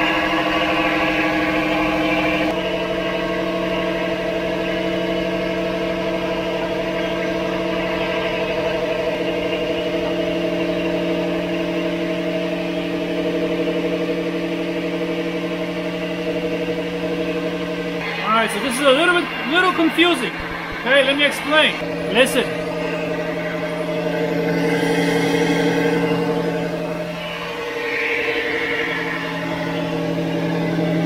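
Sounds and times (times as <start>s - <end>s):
axle humming with warble: 0.0s - 31.0s.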